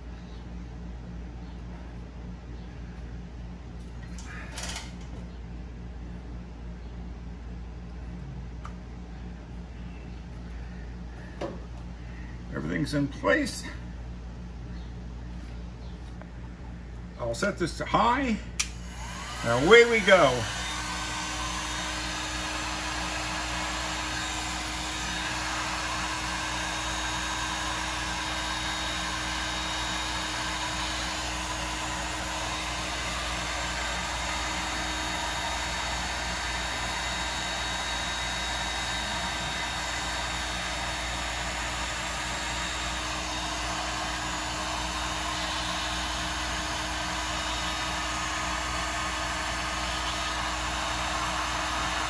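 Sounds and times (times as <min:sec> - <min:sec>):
heat gun blowing: 0:18.6 - 0:52.0.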